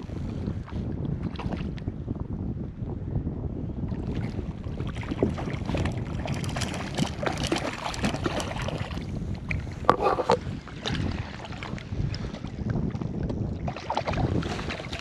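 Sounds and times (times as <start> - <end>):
wind buffeting microphone: 0.0 - 15.0
fish splashing in water: 5.0 - 9.1.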